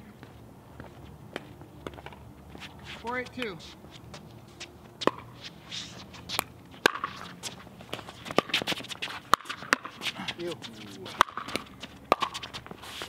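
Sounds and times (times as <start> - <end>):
shoes scuffing on hard court: 0.2 - 13.0
ball bouncing on court: 5.0 - 5.3, 6.8 - 7.3, 8.3 - 10.1, 10.7 - 12.6.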